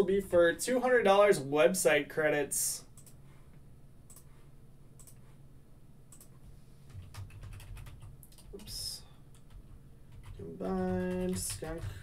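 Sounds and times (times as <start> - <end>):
faint keyboard clicking: 2.9 - 3.2, 4.1 - 4.3, 5.0 - 5.3, 6.1 - 12.0.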